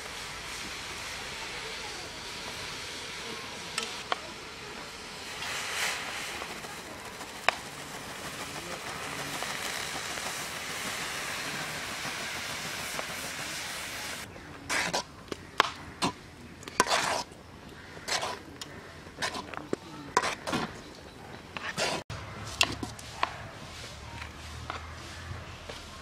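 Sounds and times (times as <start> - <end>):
spoon scraping metal pan: 16.7 - 17.3, 18.0 - 18.4, 19.2 - 20.7.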